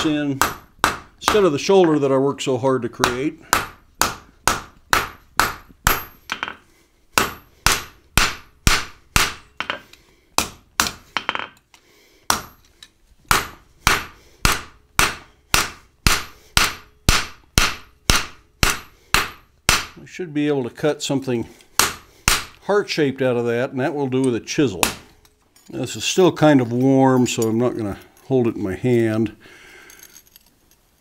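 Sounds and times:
hammer striking steel on anvil: 3.0 - 6.6, 7.2 - 9.8, 12.3 - 12.6, 13.3 - 20.0, 21.8 - 22.6.

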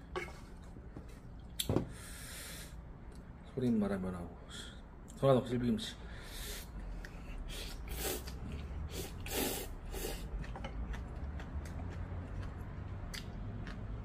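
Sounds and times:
man slurping noodles: 7.5 - 10.4.

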